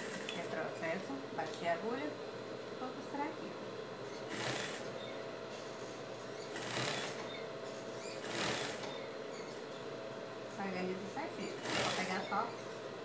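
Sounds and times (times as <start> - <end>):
faint steady hum: 0.0 - 13.0
sewing machine stitching fabric: 4.3 - 4.9, 6.4 - 7.4, 8.2 - 9.0, 11.5 - 12.3.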